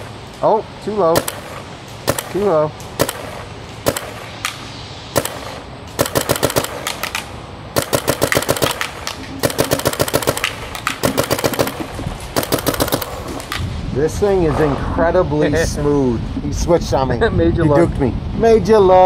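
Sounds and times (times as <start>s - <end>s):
paintball marker firing: 1.1s - 13.7s.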